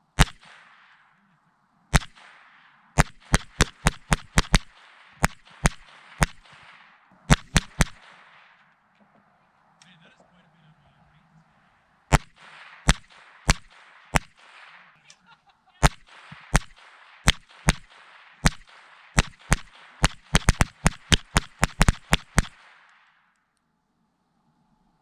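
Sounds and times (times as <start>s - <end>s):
semi-automatic rifle gunfire: 0.0s - 9.3s, 11.6s - 15.0s, 15.8s - 23.4s
bullets striking a helmet: 3.0s - 8.7s, 12.1s - 14.9s, 15.8s - 23.0s.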